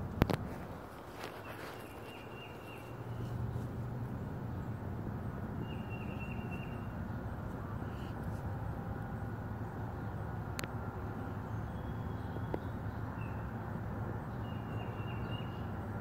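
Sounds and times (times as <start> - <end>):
steady low hum: 0.0 - 14.6
bird chirping trill: 1.3 - 3.6, 5.6 - 8.1, 11.4 - 13.6, 14.2 - 15.8.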